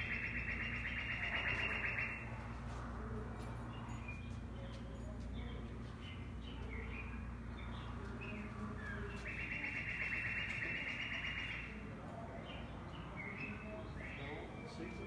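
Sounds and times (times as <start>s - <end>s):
rapid bird trill: 0.0s - 2.3s, 9.1s - 11.8s.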